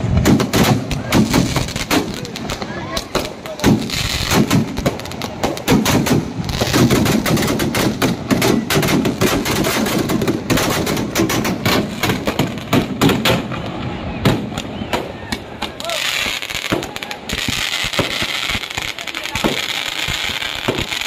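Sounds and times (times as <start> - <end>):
firecrackers rapid bangs: 0.0 - 21.0.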